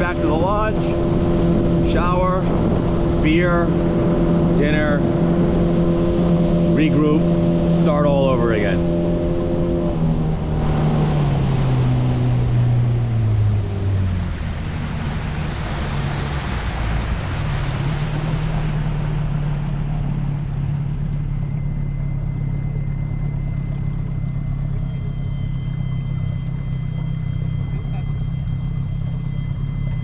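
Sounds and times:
rushing wind and water: 0.0 - 21.7
motorboat engine running: 0.0 - 30.0.

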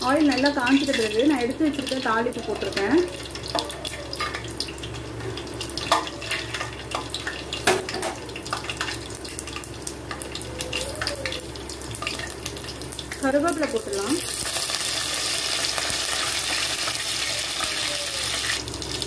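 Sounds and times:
spices sizzling in hot oil: 0.0 - 19.0.

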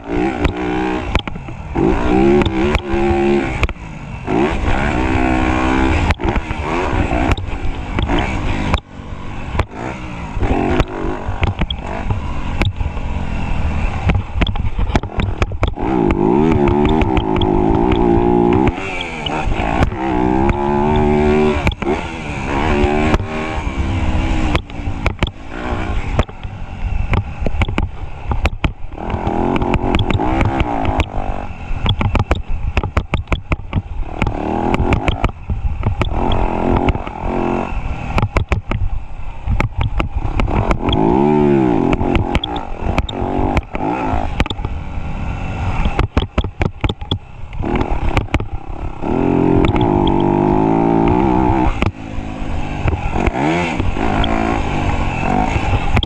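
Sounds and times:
motocross bike engine revving: 0.0 - 56.0
sharp knocks and clatter: 10.7 - 12.8, 14.0 - 18.9, 24.5 - 25.4, 27.1 - 31.2, 31.8 - 37.1, 38.2 - 41.0, 45.8 - 48.6.

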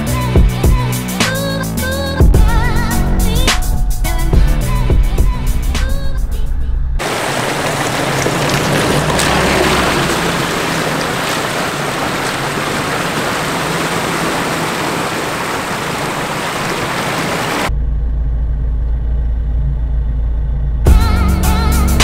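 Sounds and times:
music: 0.0 - 7.0, 20.9 - 22.0
engine running low: 4.4 - 22.0
creek water rushing over rocks: 7.0 - 17.7
tyres churning water: 7.0 - 17.7.

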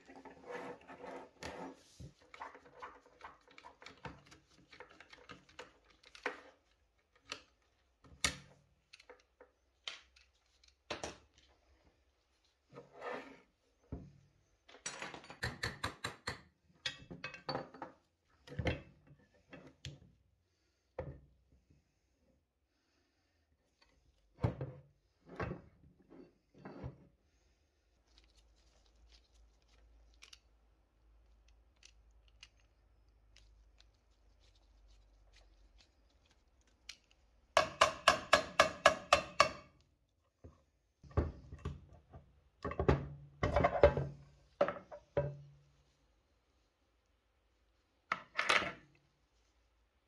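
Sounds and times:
metal rubbing and scraping: 0.0 - 2.1.

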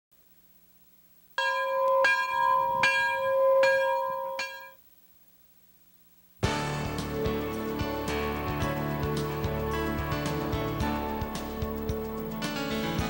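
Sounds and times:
bell ringing: 1.4 - 4.8
music: 6.4 - 13.0.

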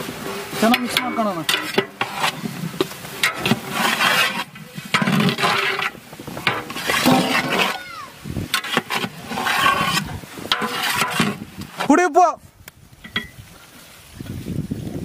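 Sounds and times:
ladle scraping a pot: 0.1 - 11.9.

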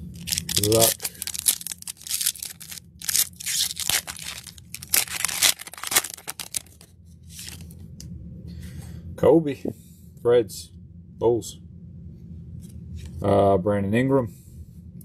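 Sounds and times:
wrapper tearing and crinkling: 0.0 - 7.7.

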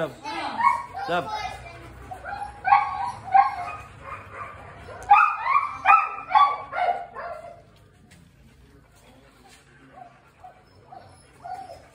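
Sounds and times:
dog barking high-pitched: 2.2 - 7.6.

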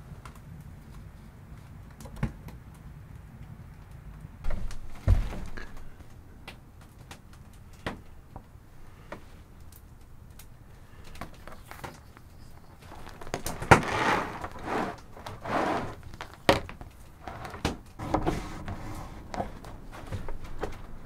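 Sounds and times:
plastic sheet rustling on wood: 10.8 - 21.0
plastic sheet snapping: 12.8 - 18.2.

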